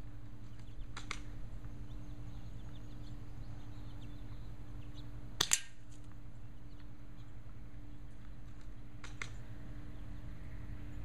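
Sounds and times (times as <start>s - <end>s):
birds chirping: 0.0s - 11.0s
low hum: 0.0s - 11.0s
sharp snaps: 0.9s - 1.3s, 5.4s - 5.8s, 8.6s - 9.4s.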